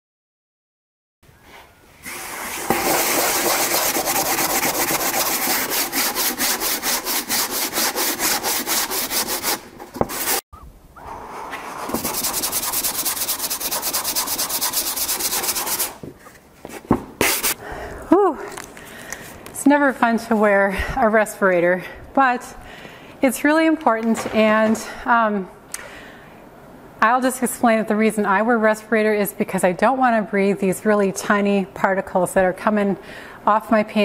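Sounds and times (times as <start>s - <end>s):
sanding block scrubbing canvas: 2.1s - 10.4s, 11.6s - 16.0s, 17.2s - 17.6s.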